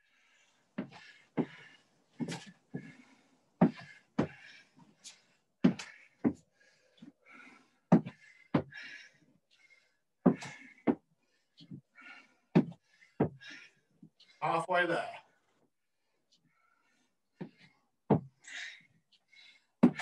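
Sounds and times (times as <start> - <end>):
feet thudding on rubber floor: 3.6 - 4.5, 10.2 - 11.0, 12.5 - 13.6, 17.4 - 18.4.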